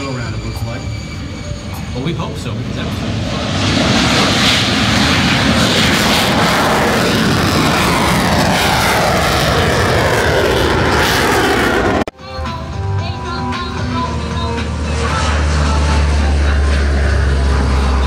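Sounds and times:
jet whine falling in pitch: 0.0s - 12.1s
jet engine roaring overhead: 0.0s - 18.0s.

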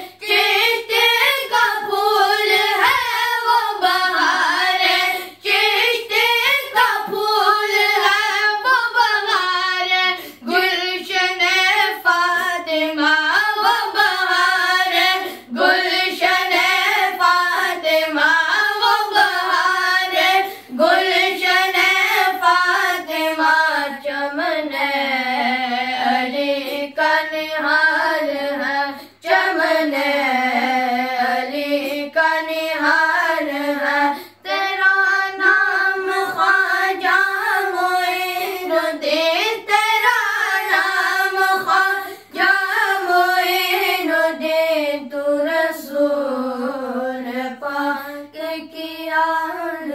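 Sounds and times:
boys singing together: 0.0s - 49.9s.

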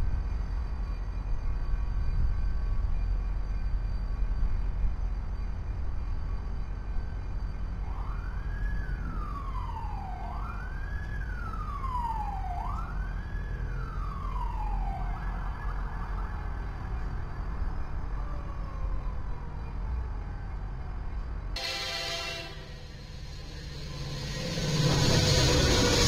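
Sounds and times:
siren wailing: 7.7s - 26.0s
steady low rumble: 22.6s - 26.0s.

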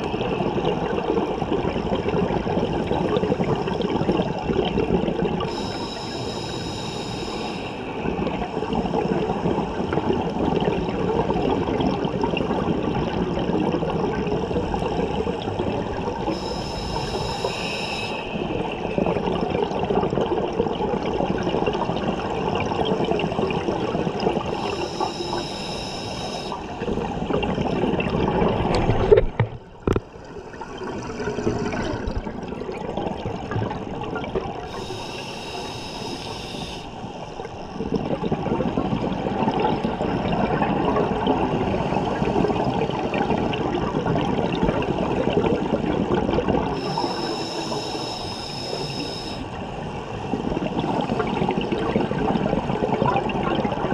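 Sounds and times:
exhaled bubbles gurgling: 0.0s - 53.9s
scuba regulator hissing inhale: 5.5s - 9.0s, 16.2s - 18.9s, 24.4s - 26.8s, 34.6s - 37.5s, 46.8s - 49.6s.

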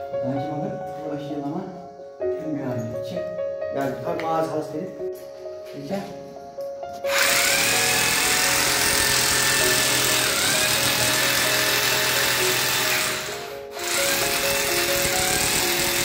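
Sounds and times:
hammer drill boring into concrete: 7.1s - 16.0s.

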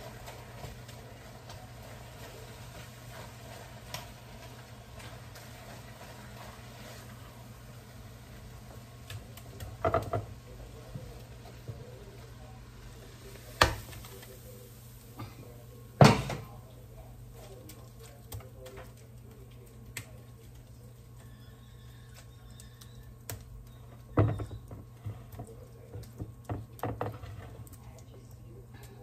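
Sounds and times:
spatula scraping food: 0.0s - 15.6s, 17.3s - 28.1s
wok knocking on glass dish: 9.8s - 10.3s.

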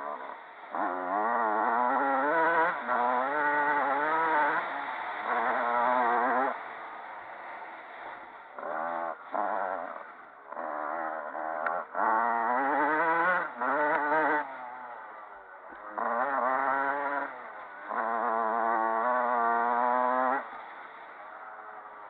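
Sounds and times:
dirt bike engine revving: 0.0s - 22.0s.

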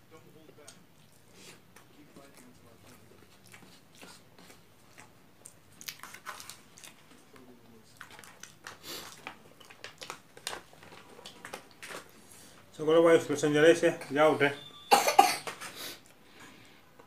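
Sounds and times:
chewing: 0.6s - 12.6s
foil tray crinkling: 7.9s - 12.6s.

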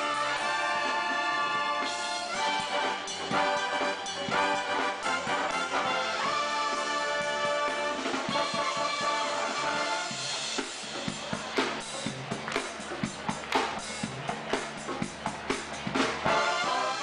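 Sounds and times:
brass and orchestra chords: 0.0s - 11.5s, 16.2s - 17.0s
drum-kit beat: 0.0s - 16.8s.

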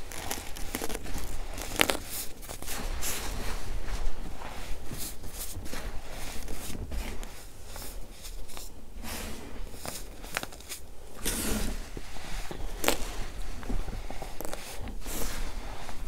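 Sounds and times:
baking soda crunching in hands: 0.0s - 3.5s, 7.8s - 13.4s.

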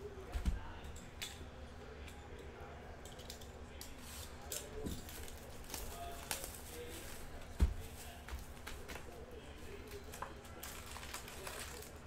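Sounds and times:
plastic wrap crinkling: 4.0s - 12.0s.

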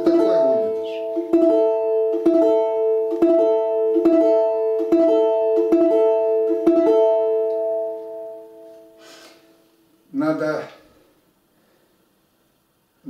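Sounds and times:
balalaika strings plucked: 0.0s - 9.2s.

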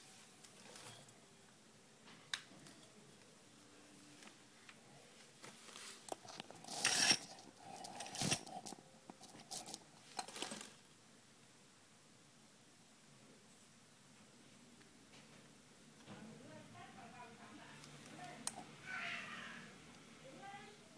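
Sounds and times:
scraping and rustling: 5.2s - 10.8s.

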